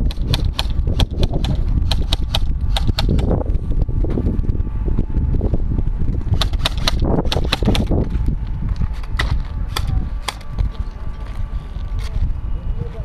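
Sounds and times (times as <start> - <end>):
airsoft guns firing: 0.0 - 3.3, 6.4 - 7.9
wind on microphone: 0.0 - 13.0
heavy footsteps: 5.9 - 12.4.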